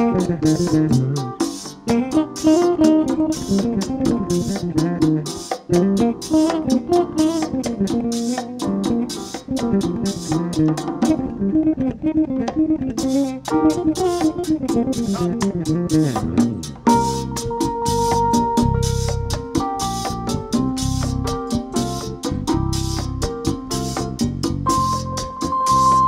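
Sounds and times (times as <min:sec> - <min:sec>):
hand percussion ticking: 0:00.0 - 0:11.4
electric bass solo: 0:00.0 - 0:26.0.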